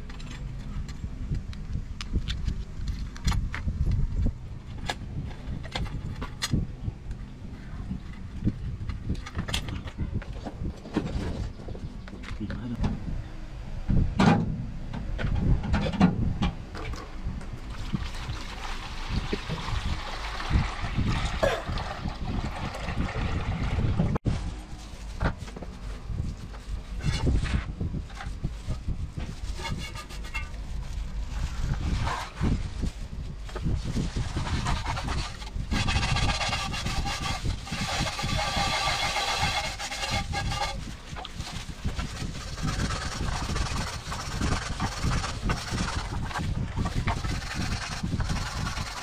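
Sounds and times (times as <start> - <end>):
liquid pouring into plastic basin: 17.7 - 24.0
scouring pad scraping metal: 29.5 - 30.6, 34.0 - 49.0.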